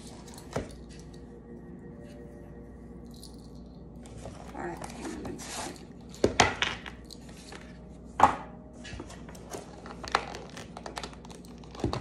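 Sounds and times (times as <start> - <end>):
packaging rustling: 9.2 - 12.0.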